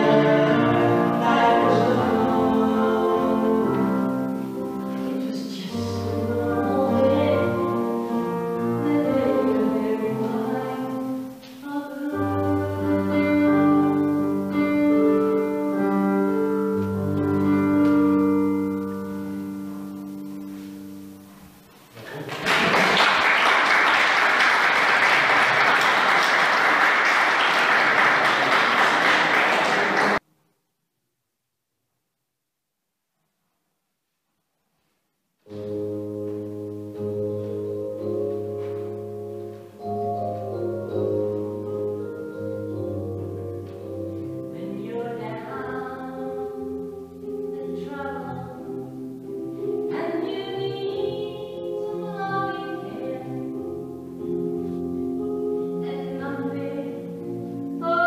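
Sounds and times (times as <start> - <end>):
woman singing: 0.0 - 13.6, 44.5 - 46.6, 47.4 - 48.9, 49.9 - 53.6, 55.8 - 57.1, 57.8 - 58.0
keyboard accompaniment: 0.0 - 22.0, 35.4 - 58.0
audience applauding: 22.0 - 30.2.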